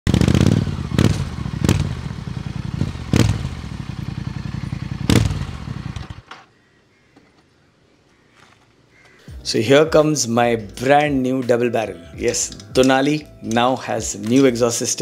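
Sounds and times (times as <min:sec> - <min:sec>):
motorcycle engine revving: 0:00.1 - 0:06.3.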